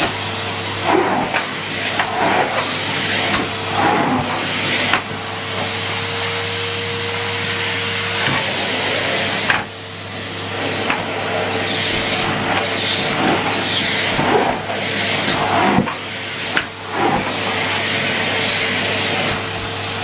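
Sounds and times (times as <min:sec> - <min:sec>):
floor tool on carpet: 0:00.0 - 0:20.0
vacuum cleaner running: 0:00.0 - 0:20.0.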